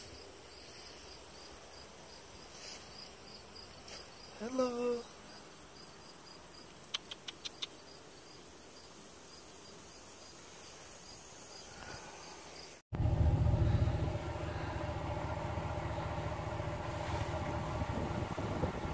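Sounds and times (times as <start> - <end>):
insects chirping in a trill: 0.0 - 12.8
truck engine humming: 12.9 - 18.9.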